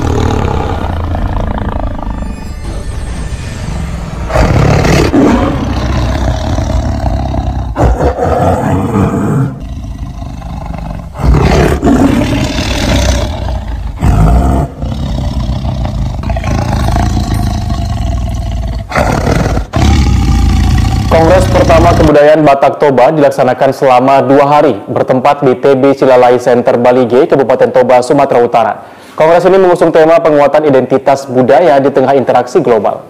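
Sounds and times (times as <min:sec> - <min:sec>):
big cat roaring: 0:00.0 - 0:02.4, 0:04.3 - 0:22.2.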